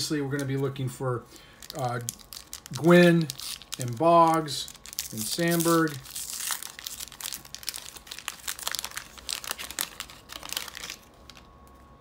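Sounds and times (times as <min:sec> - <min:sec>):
wax paper wrapper crinkling: 0:00.0 - 0:12.0.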